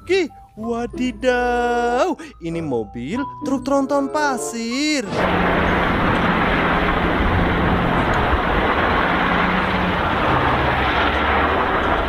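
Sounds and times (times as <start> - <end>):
dump truck driving past: 5.1 - 12.0
tyre and road noise: 5.1 - 12.0.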